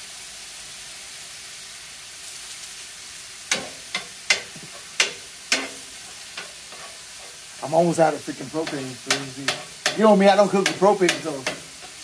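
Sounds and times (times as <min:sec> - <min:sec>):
meat sizzling on a griddle: 0:00.0 - 0:12.0
metal spatula clacking on griddle: 0:03.5 - 0:07.5, 0:08.6 - 0:12.0.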